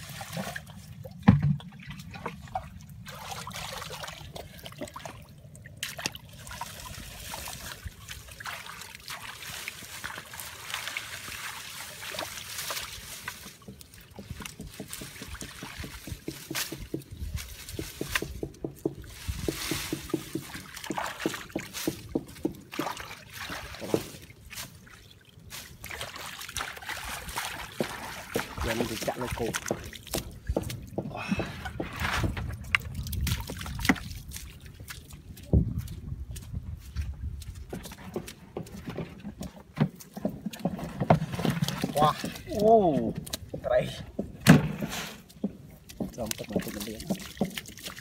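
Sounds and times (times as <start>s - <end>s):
muddy water trickling and sloshing: 0.0s - 48.0s
small knocks and rustles: 12.2s - 23.0s, 23.6s - 24.8s, 27.7s - 48.0s.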